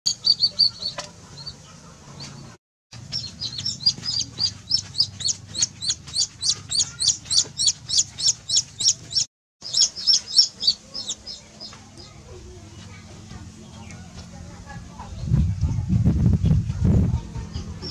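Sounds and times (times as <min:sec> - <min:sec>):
chick peeping: 0:00.1 - 0:13.0.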